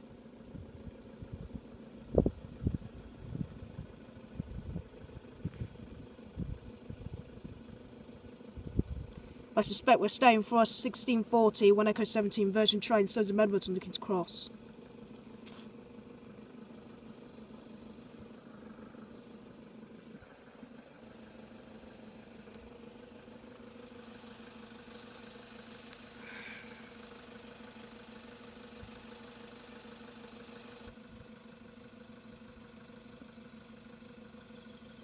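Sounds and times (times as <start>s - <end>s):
engine idling hum: 0.0s - 35.0s.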